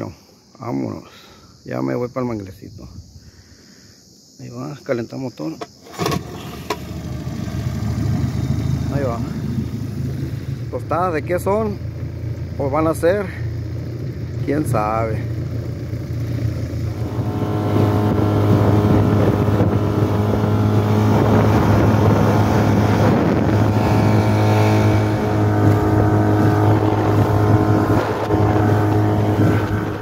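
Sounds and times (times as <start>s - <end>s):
outboard motor droning: 5.8s - 30.0s.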